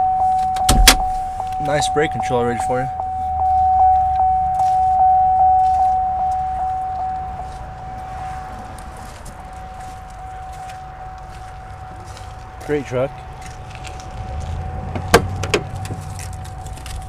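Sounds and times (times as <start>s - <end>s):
low hum: 0.0s - 8.6s
vehicle warning chime dinging: 0.0s - 11.9s.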